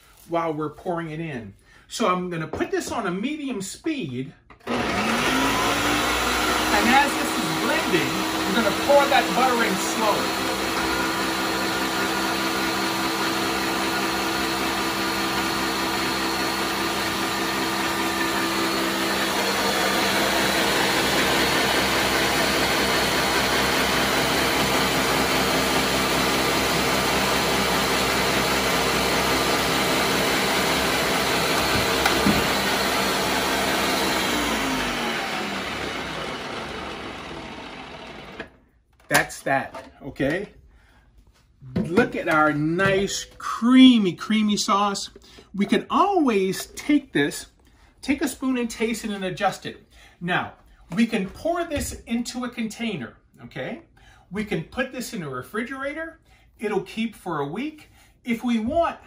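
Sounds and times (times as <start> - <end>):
blender running: 4.6 - 38.6.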